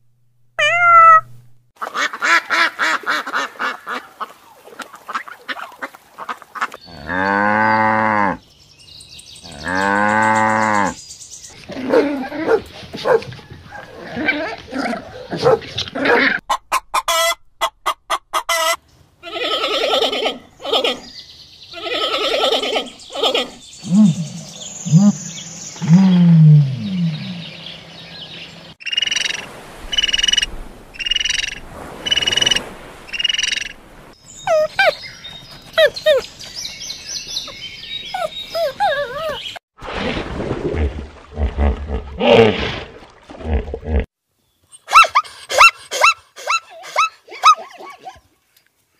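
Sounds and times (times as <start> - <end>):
high animal calls: 0.6 - 1.3
short pitched yelps: 0.6 - 1.3, 44.9 - 48.1.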